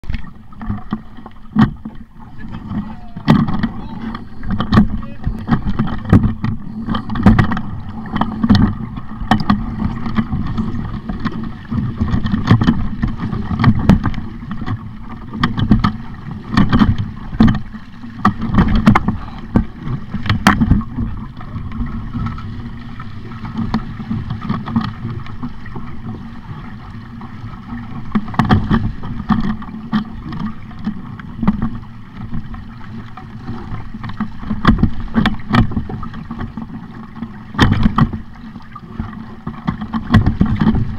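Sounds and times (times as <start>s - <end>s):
water slapping against hull: 0.0s - 40.9s
wind on microphone: 1.6s - 40.9s.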